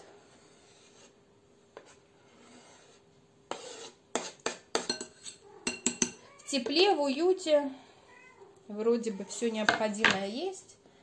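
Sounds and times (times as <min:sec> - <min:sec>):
knife scraping cutting board: 0:00.0 - 0:05.4.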